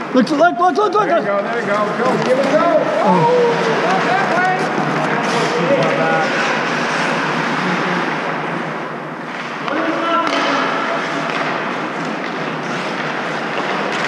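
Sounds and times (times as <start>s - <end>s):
echoing hall noise: 0.0s - 14.0s
players shouting: 2.1s - 6.4s
stick knocking puck: 9.6s - 14.0s.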